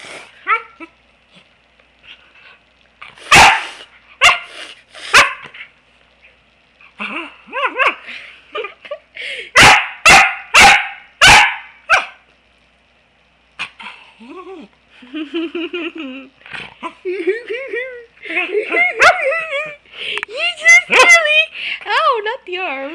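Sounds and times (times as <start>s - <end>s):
dog barking: 3.3s - 4.5s, 5.1s - 5.4s, 9.6s - 12.2s.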